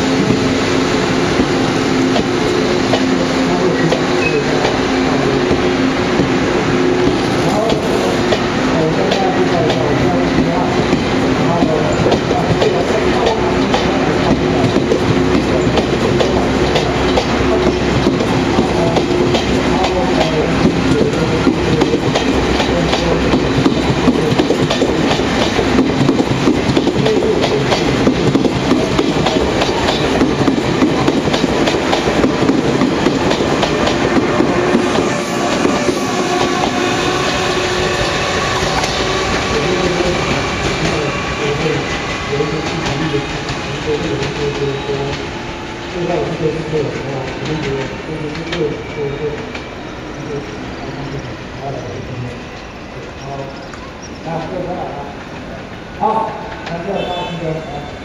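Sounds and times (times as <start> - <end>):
train wheels clattering over joints: 0.0 - 45.4
train rumble: 0.0 - 58.0.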